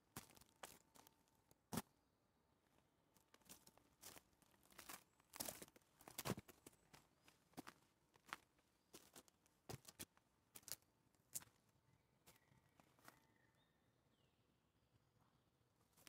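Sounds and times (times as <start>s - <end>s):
footsteps on dry forest litter: 0.1s - 1.2s, 3.2s - 11.6s.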